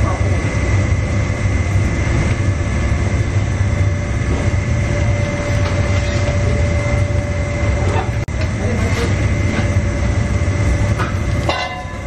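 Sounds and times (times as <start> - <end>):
high steady whine: 0.0 - 12.0
kitchen equipment low rumble: 0.0 - 12.0.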